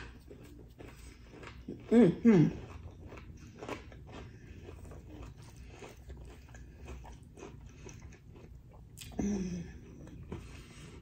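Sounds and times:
chewing crunchy food: 0.0 - 11.0.

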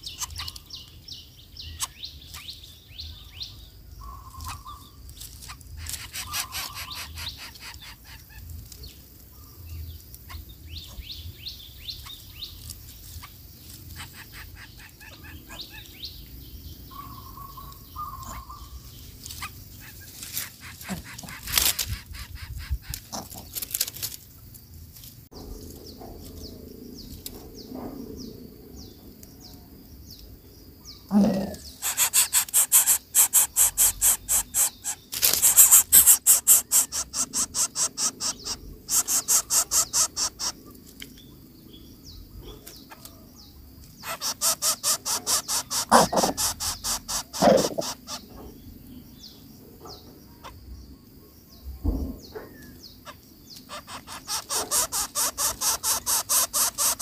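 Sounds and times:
nestlings begging calls: 0.0 - 8.5, 10.2 - 23.6, 30.9 - 40.7, 42.5 - 48.6, 52.5 - 57.0
scattered bird calls: 0.0 - 24.2, 25.4 - 57.0.

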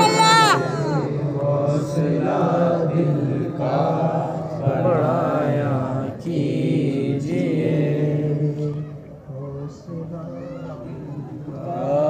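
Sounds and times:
person singing melismatic phrases: 0.0 - 1.1.

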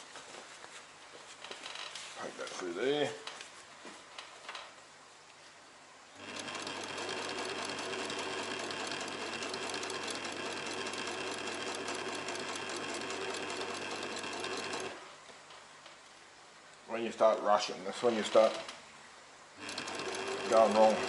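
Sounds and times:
sewing machine stitching: 6.2 - 15.0, 19.6 - 21.0.

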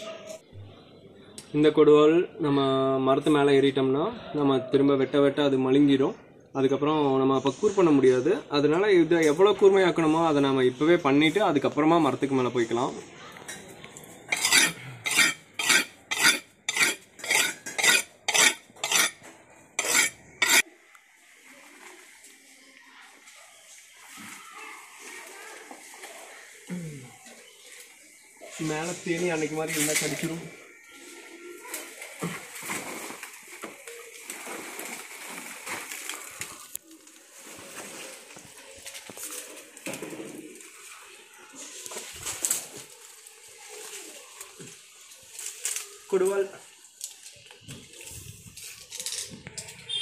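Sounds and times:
blade scraping on sharpening stone: 14.3 - 19.2, 19.8 - 20.6
hands and feet scraping on bark: 14.3 - 19.2, 19.8 - 20.6, 31.0 - 46.1
leaves rustling: 19.8 - 50.0
small clicks and crackles: 32.8 - 46.2, 46.9 - 49.8.

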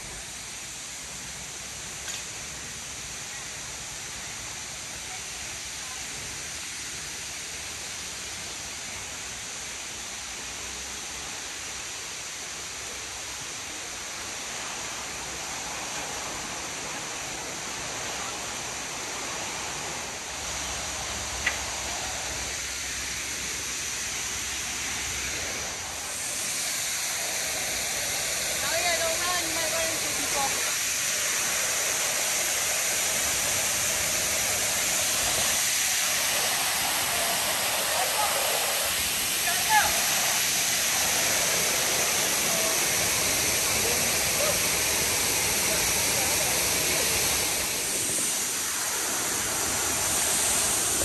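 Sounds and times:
waterfall roaring: 0.0 - 51.0.

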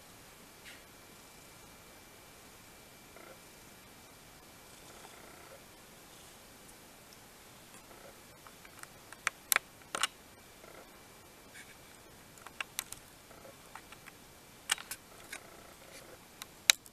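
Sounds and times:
faint steady hiss: 0.0 - 16.9
sharp clicks and ticks: 12.4 - 13.0.

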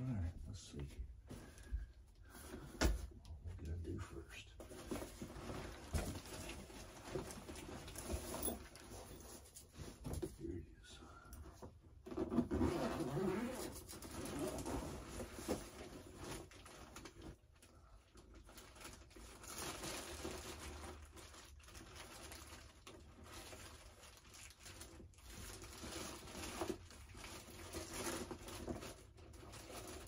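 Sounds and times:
paper and plastic packing crinkling: 4.6 - 10.1, 13.8 - 30.0.

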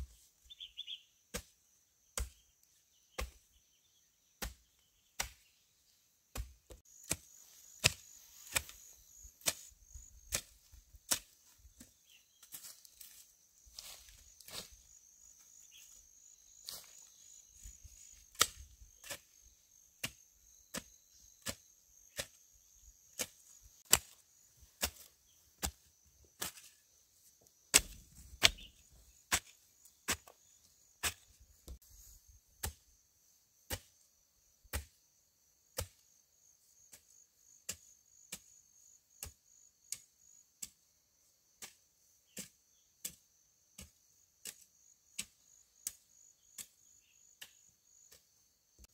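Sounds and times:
sharp chopping strikes: 5.2 - 5.5, 6.3 - 9.7, 23.2 - 24.2, 27.7 - 28.7
insects trilling: 6.8 - 48.9.

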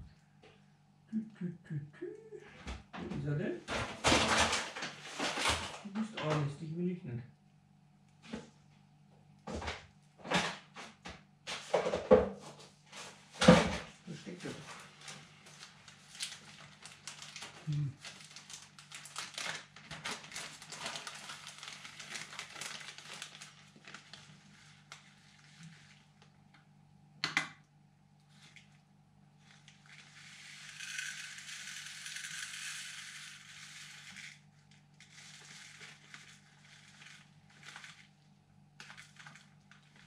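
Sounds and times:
plastic bag crinkling: 14.6 - 26.3, 29.4 - 40.0
dried spice trickling into cup: 29.7 - 34.4.

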